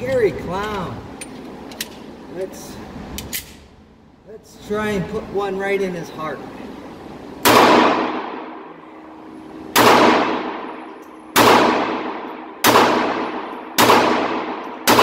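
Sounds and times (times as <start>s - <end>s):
pistol shots echoing indoors: 7.4s - 8.7s, 9.7s - 15.0s.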